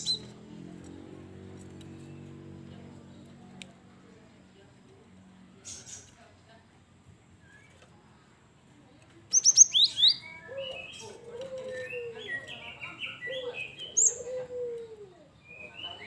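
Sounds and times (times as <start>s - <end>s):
bird twittering: 9.3s - 11.0s
bird calling: 9.3s - 16.0s.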